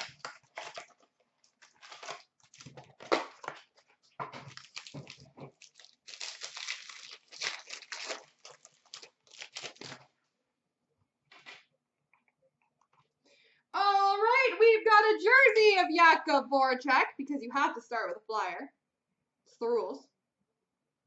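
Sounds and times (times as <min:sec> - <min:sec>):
card packaging torn and crinkled: 0:00.0 - 0:10.2.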